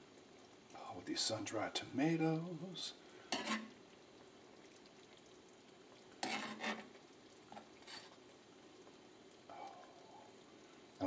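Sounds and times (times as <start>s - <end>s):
sauce sizzling: 0.0s - 11.0s
metal spoon scraping skillet: 3.3s - 3.8s, 6.2s - 7.0s, 7.8s - 8.2s.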